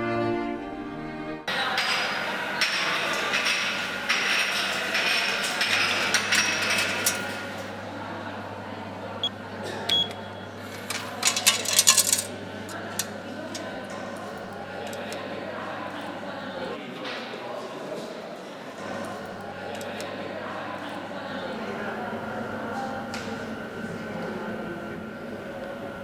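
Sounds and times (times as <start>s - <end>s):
room noise: 1.4s - 26.0s
coins and buttons clicking: 9.9s - 13.7s
metallic clatter: 10.8s - 12.3s.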